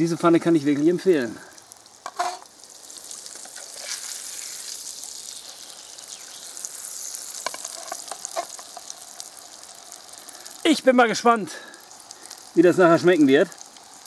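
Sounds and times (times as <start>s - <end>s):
patty sizzling in a frying pan: 0.0s - 14.0s
spatula scraping a pan: 2.0s - 2.5s, 3.4s - 4.8s, 6.9s - 9.0s.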